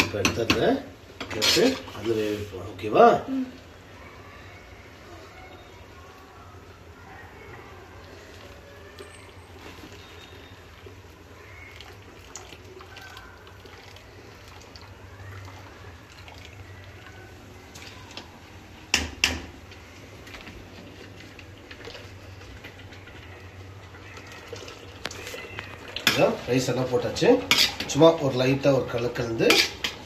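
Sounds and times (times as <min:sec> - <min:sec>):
water draining and splashing: 0:11.4 - 0:18.4.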